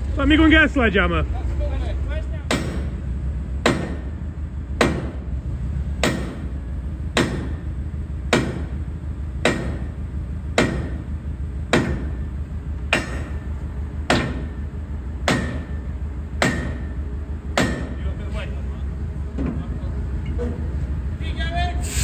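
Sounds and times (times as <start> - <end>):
steady low hum: 0.0 - 22.0
sledgehammer striking metal pin: 2.5 - 3.0, 7.2 - 7.6, 12.9 - 13.5, 15.3 - 15.8, 16.4 - 17.0, 17.6 - 18.0.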